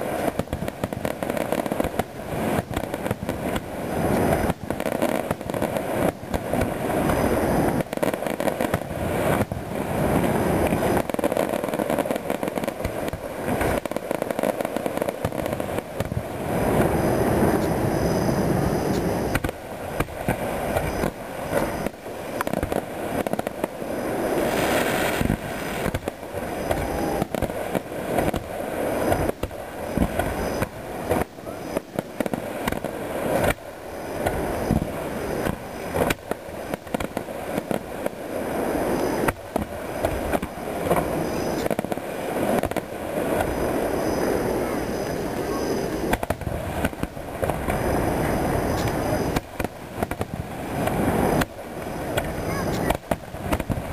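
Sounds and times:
fireworks bangs and crackles: 0.0 - 53.9
hissing burst: 15.1 - 53.9.

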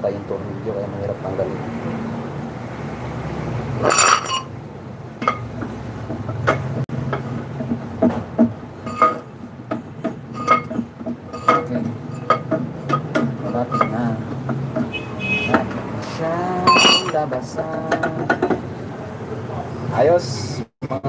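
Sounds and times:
bright metal clank: 3.8 - 4.5, 8.9 - 9.3, 10.4 - 14.0, 16.7 - 17.2
metal brake drum knocking: 5.2 - 15.8.

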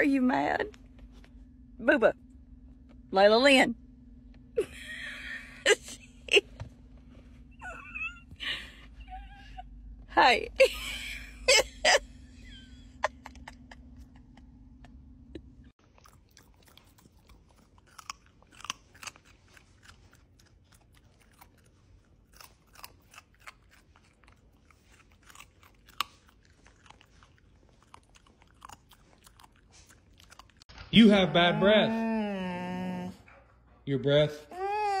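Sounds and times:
puppy chewing raw carrot: 15.8 - 31.2.

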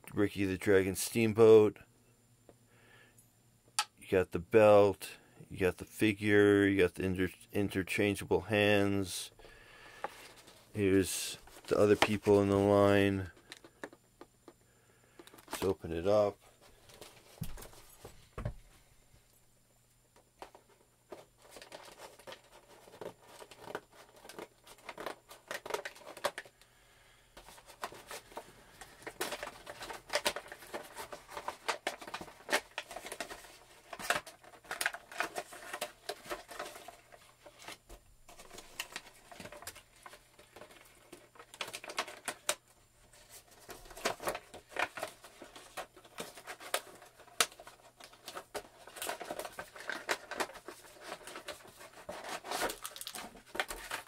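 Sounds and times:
packaging rustling and clicking: 15.2 - 18.1, 20.4 - 26.6, 27.4 - 54.0.

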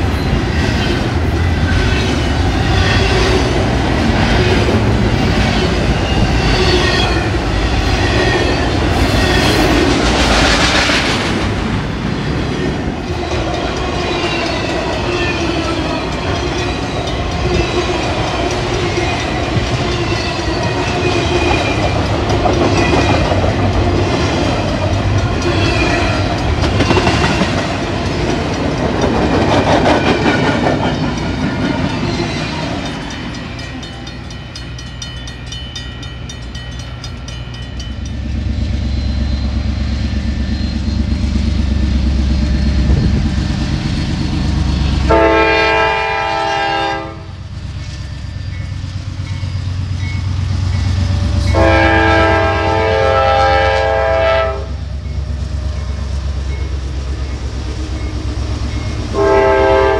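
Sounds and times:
steel wheels squealing: 0.0 - 10.1, 12.2 - 45.1, 47.5 - 51.8
freight train wheels clattering: 0.0 - 45.3.

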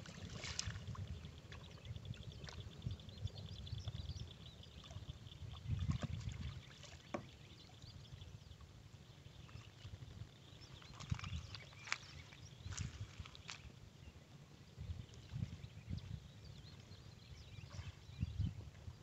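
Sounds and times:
small water splashes: 0.0 - 2.8, 4.7 - 7.9, 9.4 - 13.7
wind rumble on microphone: 0.0 - 19.0.

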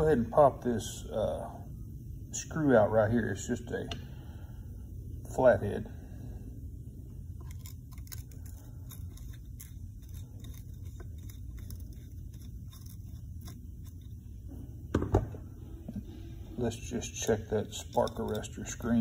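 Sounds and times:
tool knocks: 14.9 - 15.4.

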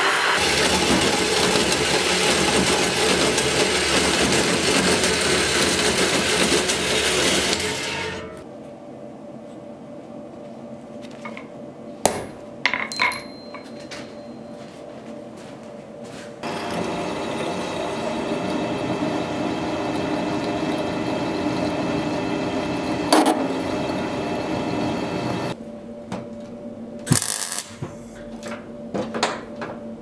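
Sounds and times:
workshop machine running: 0.0 - 8.4, 16.1 - 30.0
metal tools clinking: 12.7 - 14.3.

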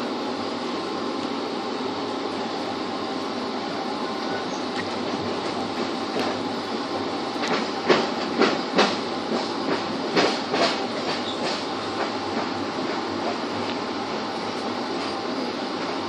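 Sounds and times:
train rumble inside coach: 0.0 - 16.0
train wheels clacking over joints: 7.3 - 13.8.

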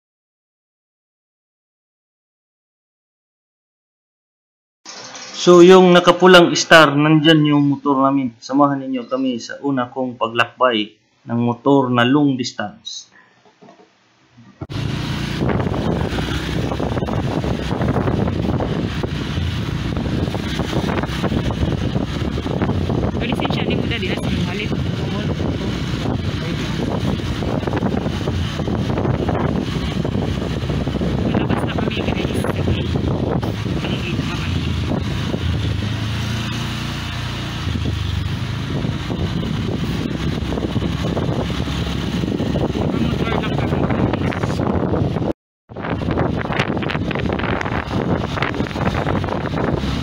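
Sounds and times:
road noise: 14.6 - 50.0
wind buffeting microphone: 14.6 - 50.0
motorcycle running: 14.7 - 50.0.

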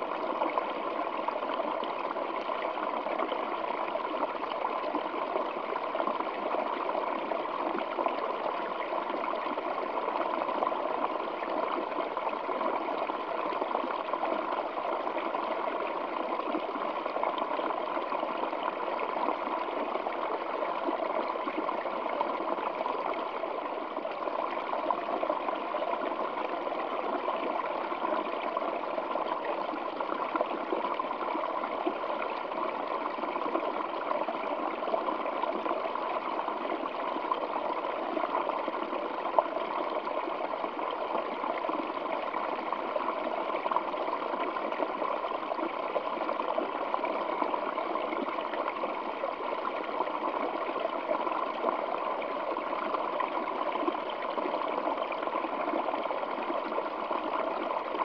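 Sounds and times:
stream trickling over rocks: 0.0 - 58.0.

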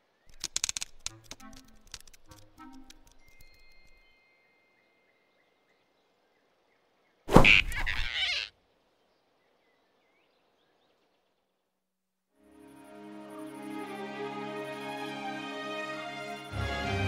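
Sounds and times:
faint forest ambience: 0.0 - 17.0
music: 1.1 - 4.5, 12.4 - 17.0
cartoon squirrel yelp: 7.4 - 8.5.

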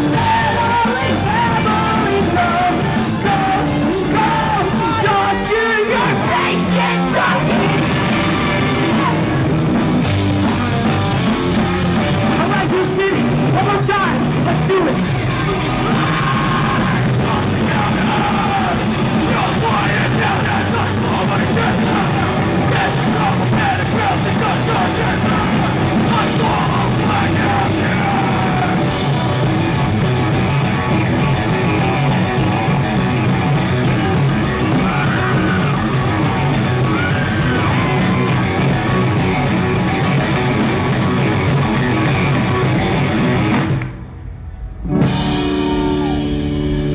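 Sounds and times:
person singing and yelling: 0.0 - 9.6, 12.2 - 29.4, 33.9 - 38.6
bass guitar: 0.0 - 46.9
drum kit: 0.0 - 46.9
electric guitars: 0.0 - 46.9.

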